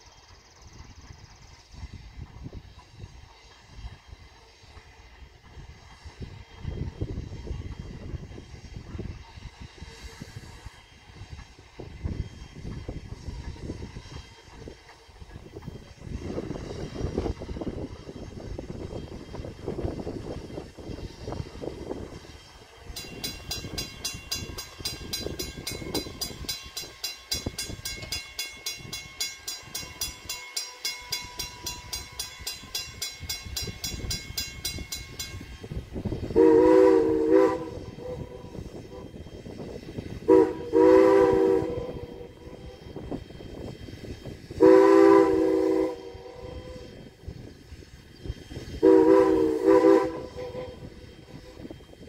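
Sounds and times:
steam locomotive working: 0.0s - 52.0s
locomotive bell ringing: 22.5s - 35.9s.

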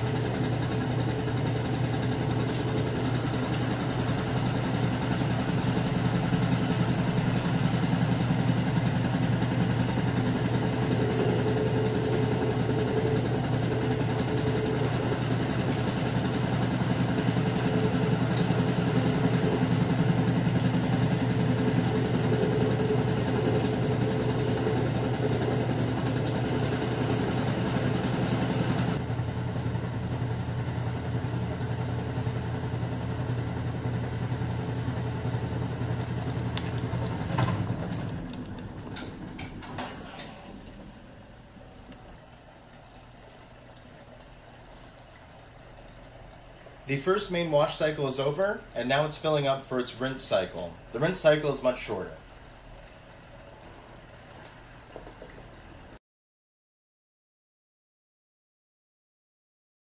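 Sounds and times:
washing machine hiss: 0.0s - 41.5s, 46.8s - 52.2s
washing machine motor hum: 0.0s - 56.0s.

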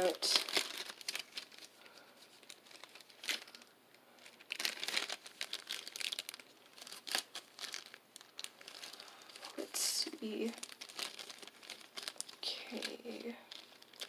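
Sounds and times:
plastic and paper crinkling: 0.0s - 14.0s.

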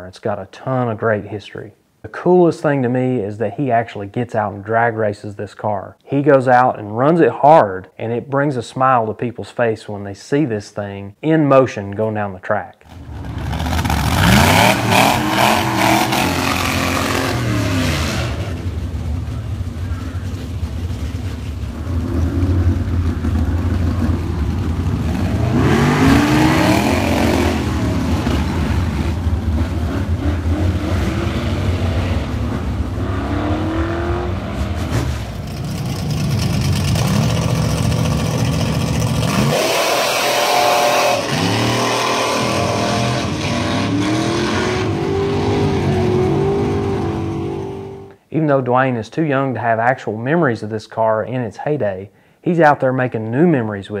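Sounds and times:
drag car engine revving: 12.9s - 48.1s.

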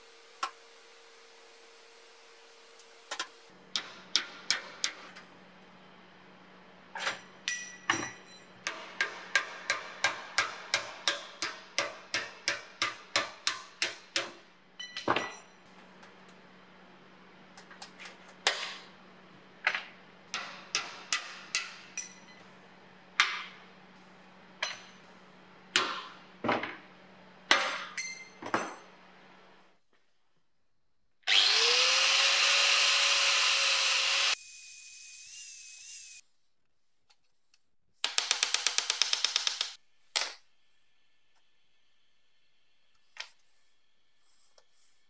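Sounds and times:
hammer striking metal: 7.5s - 14.4s, 20.3s - 22.3s.

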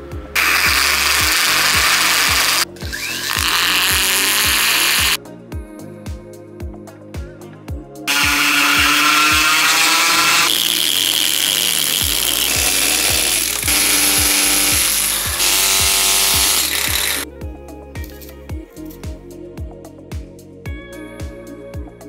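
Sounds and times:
background music with steady beat: 0.0s - 22.0s
power tool grinding stone: 0.4s - 5.2s, 8.1s - 17.2s.

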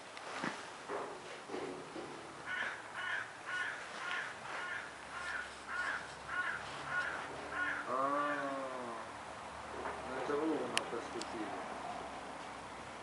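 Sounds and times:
animal calling: 2.4s - 9.1s.

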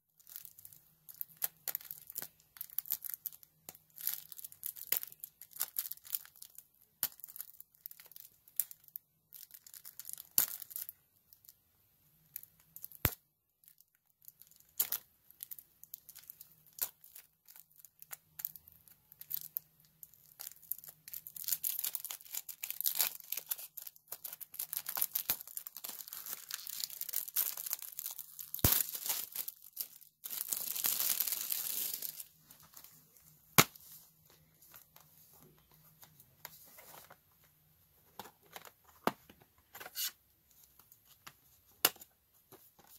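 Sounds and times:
shrink wrap crinkling and tearing: 0.2s - 11.6s, 12.3s - 33.8s.

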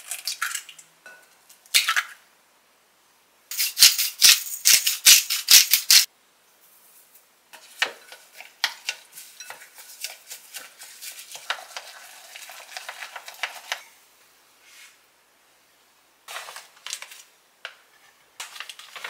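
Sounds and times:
pepper grinder cranking: 3.5s - 6.1s
chopsticks beating egg batter: 7.6s - 13.9s.

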